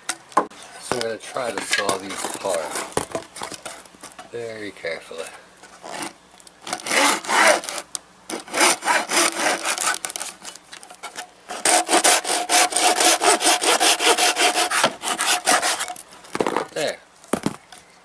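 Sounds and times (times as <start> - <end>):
hand saw cutting hose: 5.8 - 16.0.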